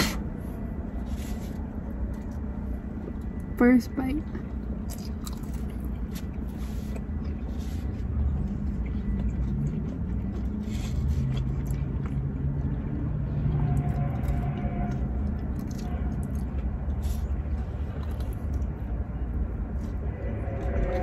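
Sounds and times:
car and traffic rumble: 0:00.0 - 0:21.0
engine hum: 0:00.0 - 0:21.0.

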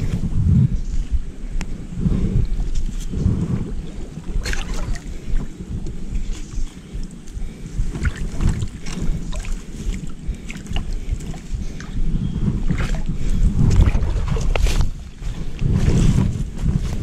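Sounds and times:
wind rumble: 0:00.0 - 0:17.0
clothing rubbing on microphone: 0:02.0 - 0:05.2, 0:12.4 - 0:17.0
muddy water sloshing and splashing: 0:04.0 - 0:05.5, 0:06.2 - 0:12.0, 0:12.6 - 0:16.9.

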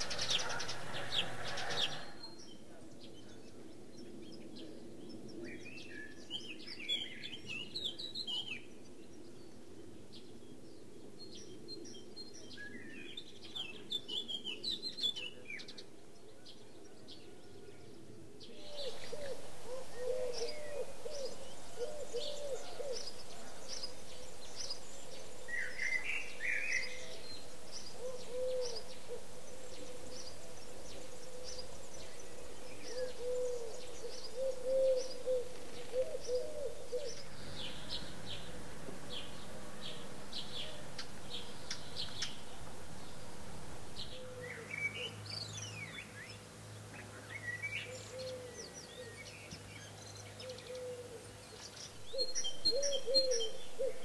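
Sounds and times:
songbirds warbling: 0:00.0 - 0:54.0
low cooing: 0:18.5 - 0:24.3, 0:27.9 - 0:43.2, 0:44.0 - 0:45.0, 0:50.4 - 0:51.3, 0:52.1 - 0:54.0.

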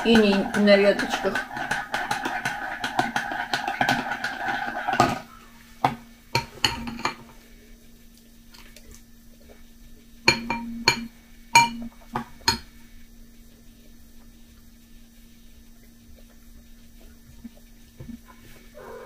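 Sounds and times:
teaspoon stirring in ceramic mug: 0:00.0 - 0:04.9
spoon tapping glass bowl: 0:10.3 - 0:11.9.

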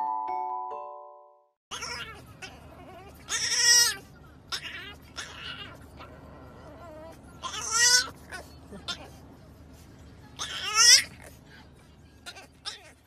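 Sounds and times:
puppy whining: 0:01.7 - 0:09.2, 0:12.2 - 0:13.0.

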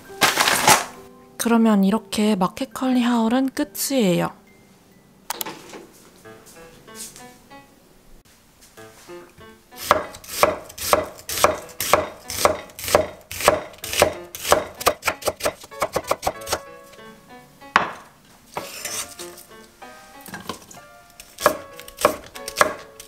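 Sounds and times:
knife chopping onion on wooden board: 0:09.8 - 0:16.6, 0:17.8 - 0:18.0, 0:21.2 - 0:23.0.

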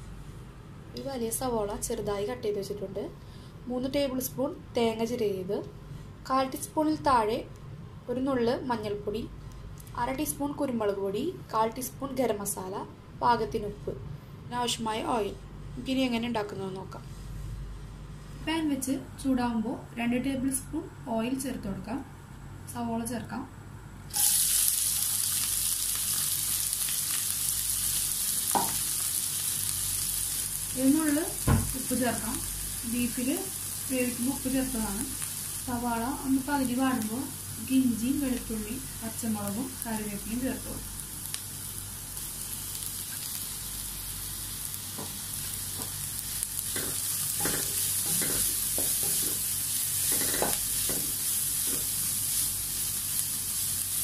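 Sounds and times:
onion sizzling in hot oil: 0:24.1 - 0:54.0.

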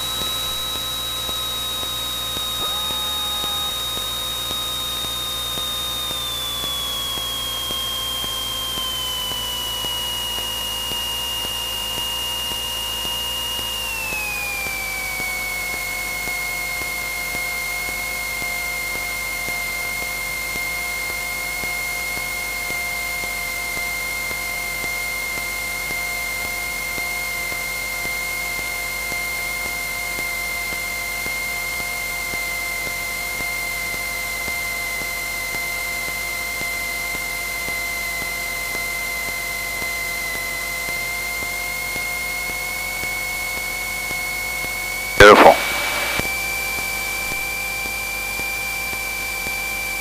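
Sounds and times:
aircraft engine and propeller drone: 0:00.0 - 0:16.2.

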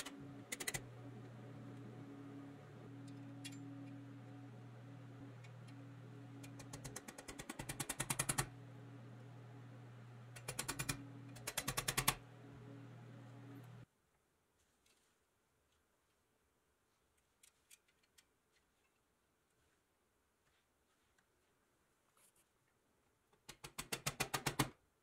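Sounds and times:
low hum: 0:00.0 - 0:07.0, 0:08.4 - 0:13.9.

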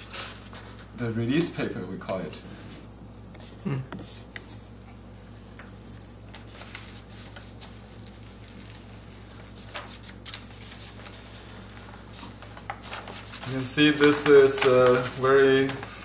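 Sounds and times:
steady low hum: 0:00.0 - 0:16.0
paper crinkling and crackling: 0:04.2 - 0:16.0.

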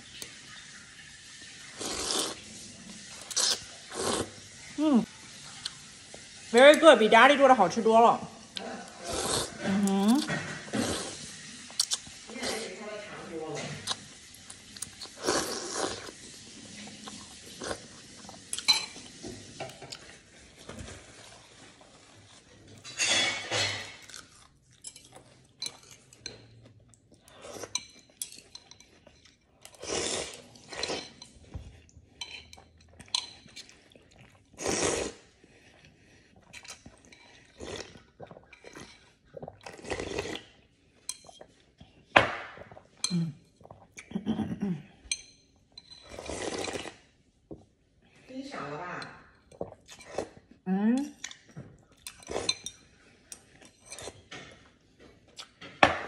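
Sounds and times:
person slurping noodles: 0:01.7 - 0:02.5, 0:03.2 - 0:05.1, 0:09.0 - 0:10.0, 0:10.6 - 0:12.6, 0:14.9 - 0:16.3, 0:29.8 - 0:31.0, 0:34.5 - 0:35.4, 0:37.4 - 0:40.6, 0:46.1 - 0:47.0
utensils clinking against bowl: 0:18.5 - 0:20.1, 0:22.7 - 0:24.2, 0:24.8 - 0:26.6, 0:27.6 - 0:29.8, 0:32.1 - 0:33.8, 0:45.1 - 0:46.9, 0:52.0 - 0:54.7.

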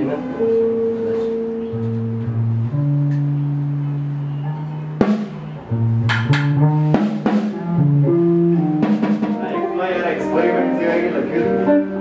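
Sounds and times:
guitar playing low notes: 0:00.0 - 0:12.0
drum kit hits: 0:05.0 - 0:09.8.

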